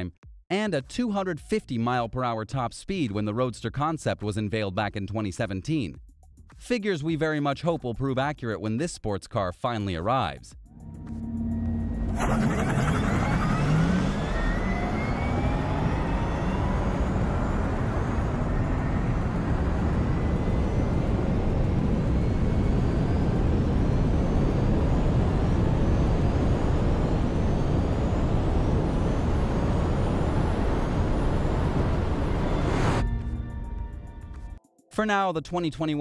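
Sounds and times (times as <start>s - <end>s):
electric motor whine: 10.8s - 33.0s
wind and road noise: 10.8s - 33.0s.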